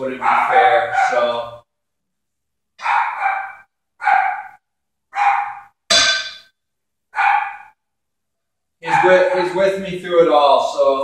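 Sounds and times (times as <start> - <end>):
dog barking: 0.1 - 1.4, 2.8 - 5.8, 7.2 - 7.8, 8.8 - 9.4.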